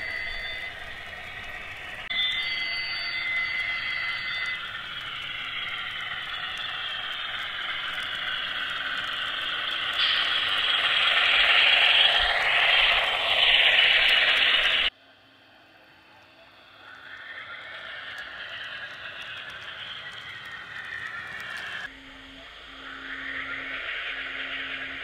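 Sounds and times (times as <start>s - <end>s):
model wheels rolling on rails: 0.0s - 14.9s, 16.1s - 21.9s
tinny model engine sound: 0.0s - 25.0s
steady high tone: 2.1s - 14.9s.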